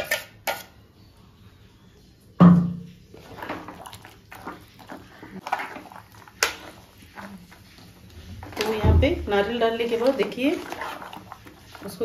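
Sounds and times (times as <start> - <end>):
spoon scraping inside pot: 0.0 - 0.7, 3.2 - 8.8, 9.4 - 12.0.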